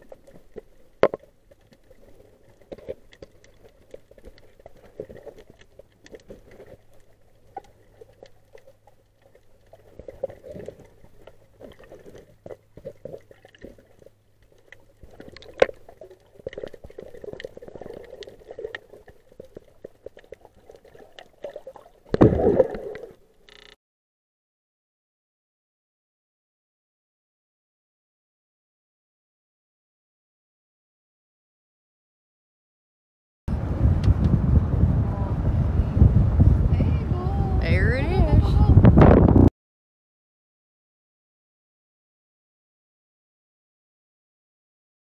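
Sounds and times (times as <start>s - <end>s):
underwater clicks and crackles: 0.0s - 23.8s, 34.0s - 34.4s
underwater water sloshing: 0.0s - 23.8s.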